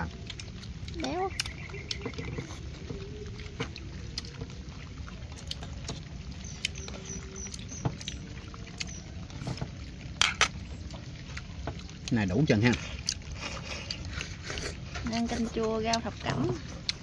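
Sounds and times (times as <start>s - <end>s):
faint high chirps: 1.0s - 3.6s, 6.3s - 9.2s.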